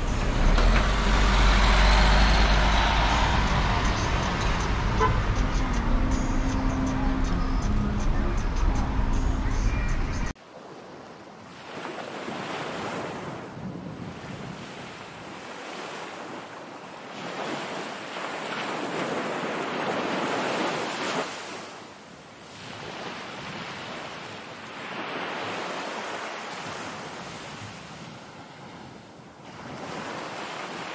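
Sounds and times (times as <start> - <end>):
sea waves breaking on beach: 10.4 - 30.9
wind noise on microphone: 13.1 - 15.4.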